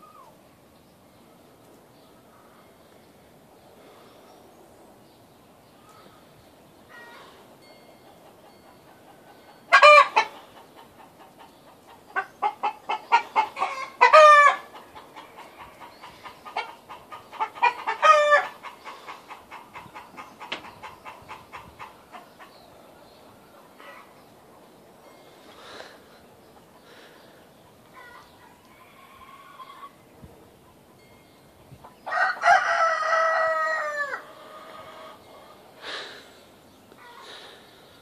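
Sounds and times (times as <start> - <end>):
chickens clucking: 6.9 - 31.1, 31.8 - 35.9
loud chicken calls: 9.1 - 22.5, 27.9 - 30.0, 32.0 - 36.0.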